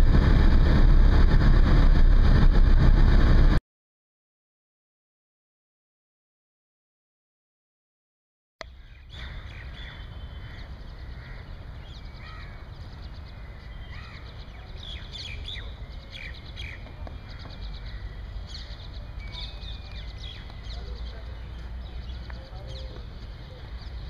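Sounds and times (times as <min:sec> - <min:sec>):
steady low rumble: 0:00.0 - 0:03.6, 0:08.6 - 0:24.0
birds chirping and calling: 0:08.6 - 0:24.0.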